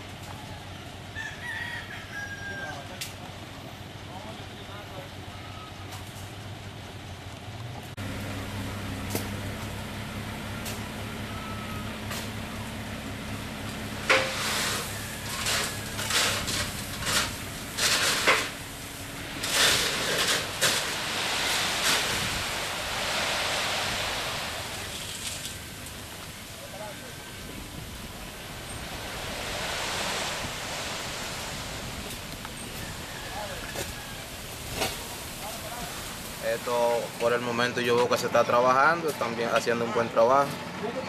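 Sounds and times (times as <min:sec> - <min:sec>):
truck engine revving: 0:07.8 - 0:37.4
sand sliding out of truck bed: 0:10.6 - 0:37.6.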